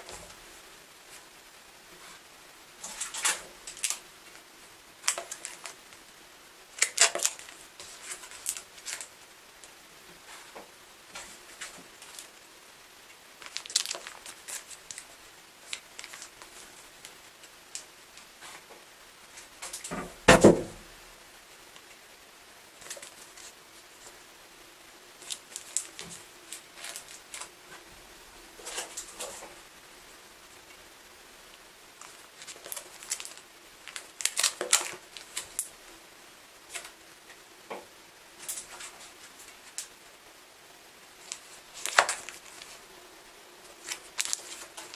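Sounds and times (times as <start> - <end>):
plastic rustling: 1.9 - 6.1, 6.7 - 12.4, 13.1 - 20.9, 22.7 - 24.2, 25.1 - 29.7, 31.5 - 36.0, 36.6 - 40.0, 41.1 - 42.9, 43.6 - 44.9
books thumping: 19.9 - 20.8.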